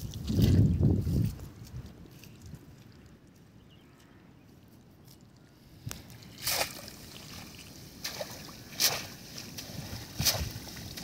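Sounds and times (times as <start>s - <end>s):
water splashing: 6.0s - 11.0s.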